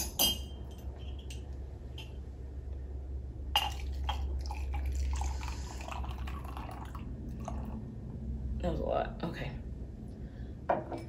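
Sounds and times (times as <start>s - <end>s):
glassware clinking: 0.0s - 2.2s, 3.6s - 4.3s
coffee trickling into a cup: 3.6s - 7.8s.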